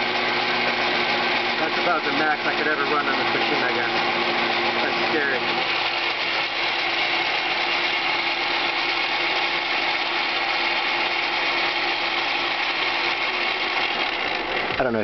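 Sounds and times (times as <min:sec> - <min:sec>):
metal lathe running: 0:00.0 - 0:15.0
cutting bit hissing on steel: 0:01.6 - 0:08.4.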